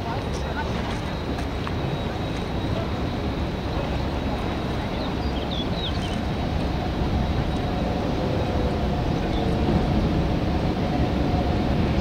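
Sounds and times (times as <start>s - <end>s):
wind noise: 0.0s - 12.0s.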